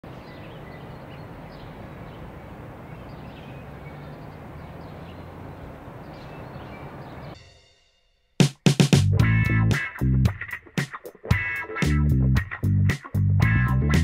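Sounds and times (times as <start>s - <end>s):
bird chirps: 0.0s - 7.4s
low traffic hum: 0.0s - 7.4s.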